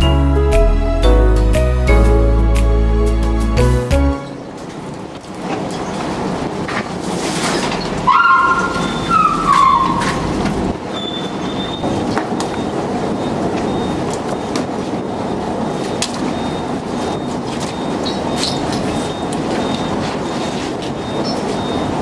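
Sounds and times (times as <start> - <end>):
metallic squealing: 7.6 - 11.8
mechanical rumble and rush: 8.7 - 10.9.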